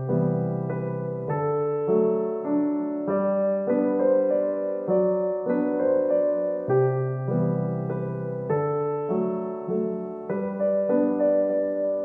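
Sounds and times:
soft piano chords: 0.0 - 12.0.

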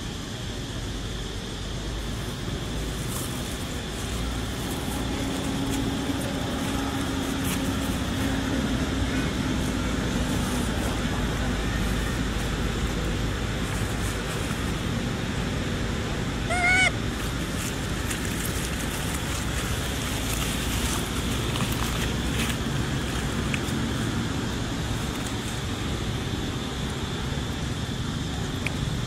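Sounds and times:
outdoor background noise: 0.0 - 29.0
macaque call: 16.3 - 21.7.

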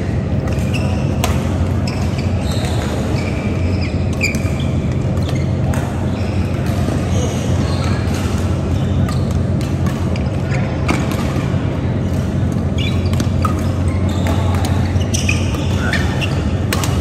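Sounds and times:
steady low hum: 0.0 - 17.0
voices in a large hall: 0.0 - 17.0
shoe squeaks on court: 0.5 - 1.2, 1.8 - 6.5, 12.7 - 17.0
rackets striking shuttlecock: 7.9 - 17.0.

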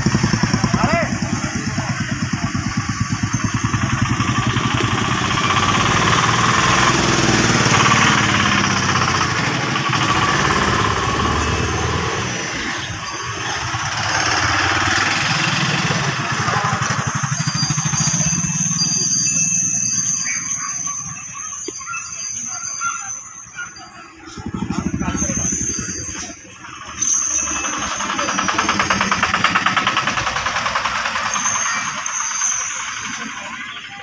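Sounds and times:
vehicle passing: 0.0 - 20.5
engine idling: 0.0 - 21.8, 23.4 - 34.0.

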